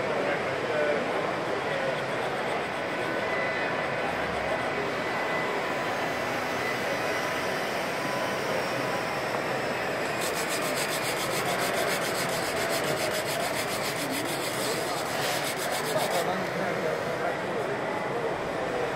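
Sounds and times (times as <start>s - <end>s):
sanding block scraping wood: 10.1s - 16.4s.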